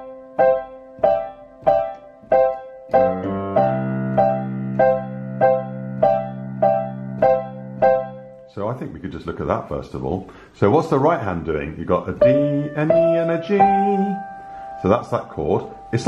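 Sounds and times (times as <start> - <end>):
piano low notes run: 0.0 - 9.0
digital piano chords: 0.0 - 10.0, 12.0 - 16.0.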